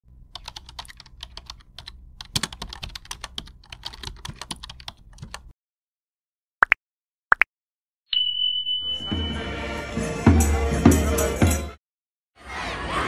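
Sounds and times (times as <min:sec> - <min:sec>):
keystroke clicks: 0:00.3 - 0:05.5.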